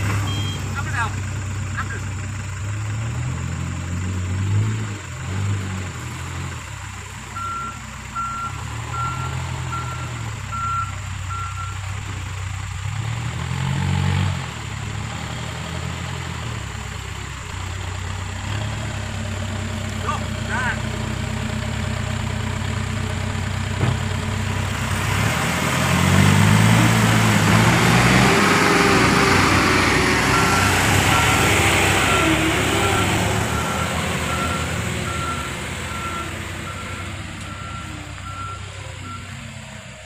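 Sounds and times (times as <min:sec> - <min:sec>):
truck engine revving: 0:00.0 - 0:40.0
reversing alarm beeps: 0:00.2 - 0:00.7, 0:07.4 - 0:11.8, 0:30.3 - 0:39.4.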